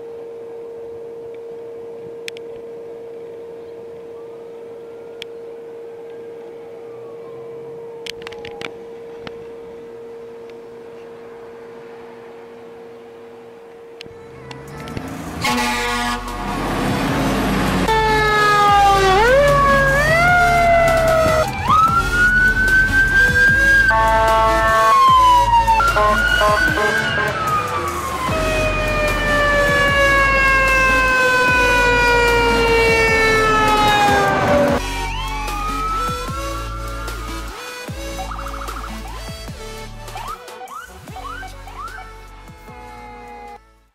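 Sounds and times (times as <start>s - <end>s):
faint siren wailing: 0.0s - 39.4s, 40.1s - 43.6s
electronic music: 14.2s - 43.9s
constant steady tone: 17.8s - 43.9s.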